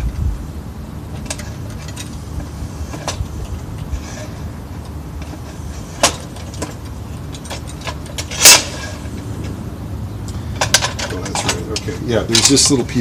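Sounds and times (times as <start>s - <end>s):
low rumble: 0.0s - 5.8s.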